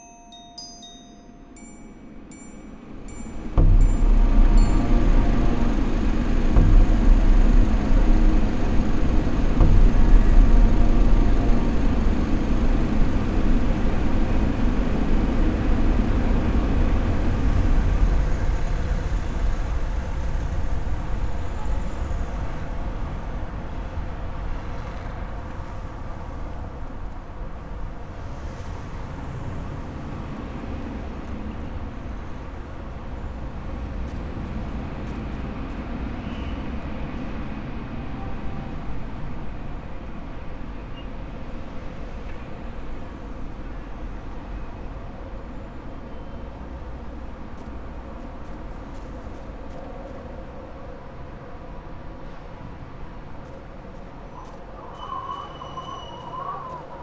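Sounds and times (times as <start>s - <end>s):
low vehicle rumble: 3.5s - 23.4s.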